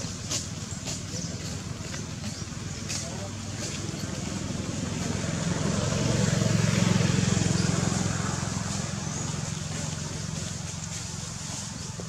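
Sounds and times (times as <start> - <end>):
motor engine humming: 0.0 - 12.0.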